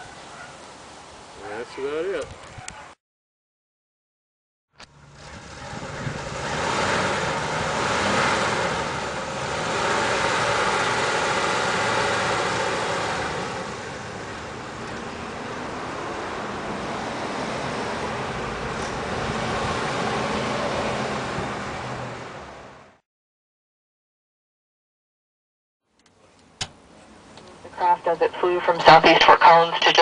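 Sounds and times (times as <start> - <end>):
car engine running in gear: 4.8 - 16.6.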